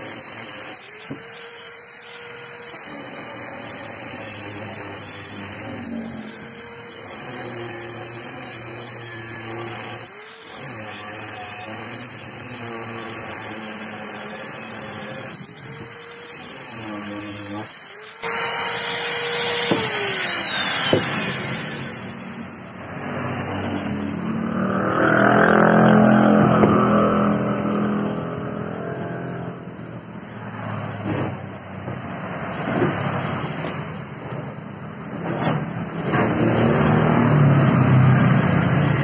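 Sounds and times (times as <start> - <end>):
angle grinder winding down: 0.0 - 31.0, 36.0 - 39.0
vehicle engine: 21.4 - 39.0.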